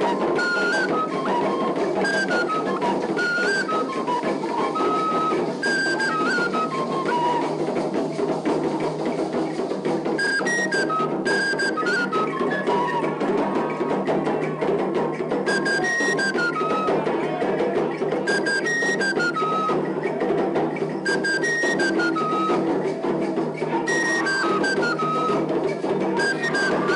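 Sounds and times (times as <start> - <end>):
high piped melody: 0.0 - 7.0, 21.0 - 23.1, 23.8 - 26.9
drums beating fast rhythm: 0.0 - 26.9.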